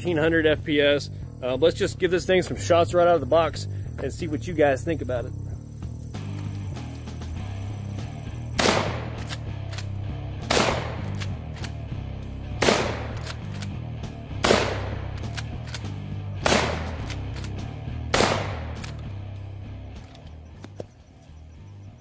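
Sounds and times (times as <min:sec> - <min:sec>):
background music: 0:00.0 - 0:22.0
shotgun shots: 0:08.6 - 0:11.8, 0:12.5 - 0:13.8, 0:14.4 - 0:19.0.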